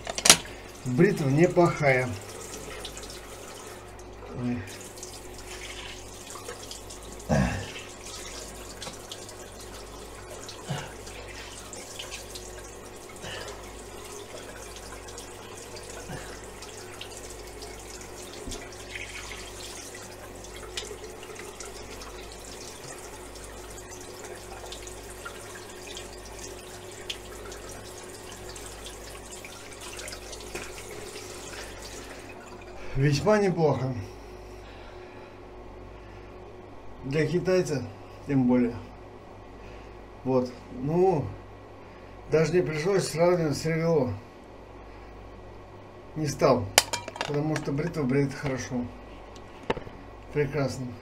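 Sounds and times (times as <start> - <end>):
tap running into a sink: 0.0 - 0.6, 8.8 - 9.2, 18.3 - 19.8, 46.8 - 47.8.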